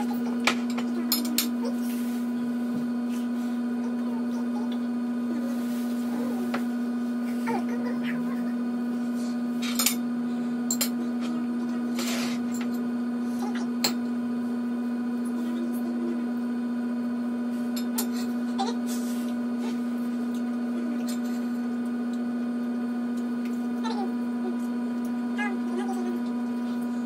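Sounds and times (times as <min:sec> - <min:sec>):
low electrical hum: 0:00.0 - 0:27.0.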